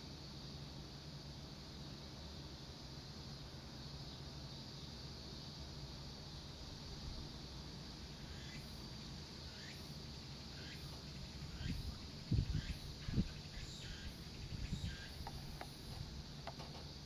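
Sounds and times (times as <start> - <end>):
insects trilling: 0.0 - 17.0
wind buffeting microphone: 11.5 - 13.6, 14.3 - 15.4.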